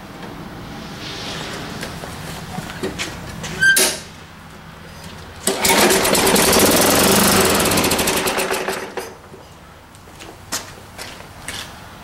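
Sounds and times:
lawn mower engine starting and running: 0.1 - 9.4.

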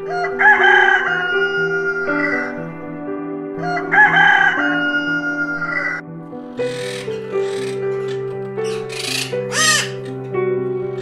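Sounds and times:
rooster crowing: 0.0 - 2.6, 3.6 - 6.0
background music: 0.0 - 11.0.

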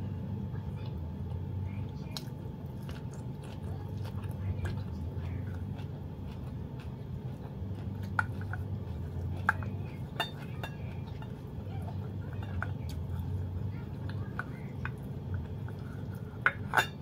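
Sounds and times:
chewing leafy greens: 0.0 - 17.0
steady low hum: 0.0 - 17.0
bowls clinking: 14.0 - 17.0.

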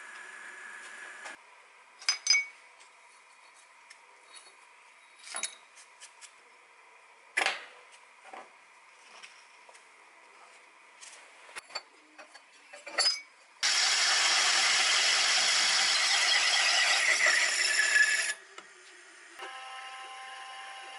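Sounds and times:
milling machine humming: 13.6 - 18.4.

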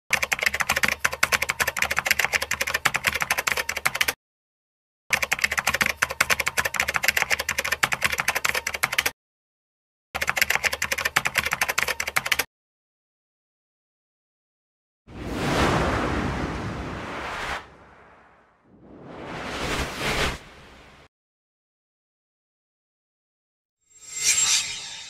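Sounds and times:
rapid typing on keyboard: 0.1 - 4.2, 5.1 - 9.2, 10.2 - 12.5.

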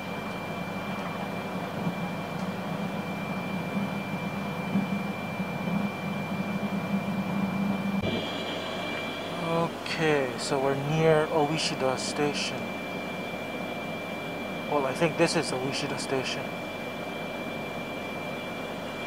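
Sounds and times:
low hum: 0.0 - 19.0
thin high whine: 0.0 - 19.0.

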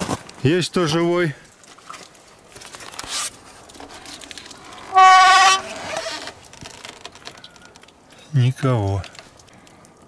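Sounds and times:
door hinges creaking: 4.6 - 7.3.

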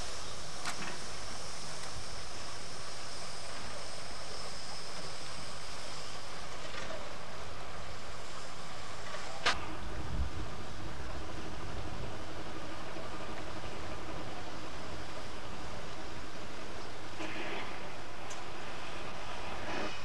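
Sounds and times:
steam hissing from locomotive: 0.0 - 9.5, 14.1 - 20.0.

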